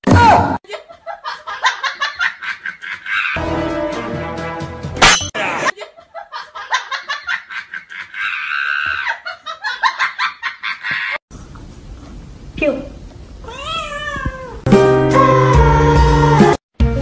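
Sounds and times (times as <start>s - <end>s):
laughter: 0.6s - 3.4s, 5.7s - 11.2s.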